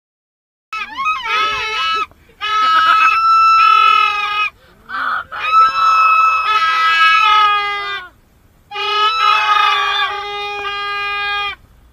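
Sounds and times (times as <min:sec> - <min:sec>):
plastic horns honking: 0:00.8 - 0:04.5, 0:05.4 - 0:08.1, 0:08.7 - 0:11.6.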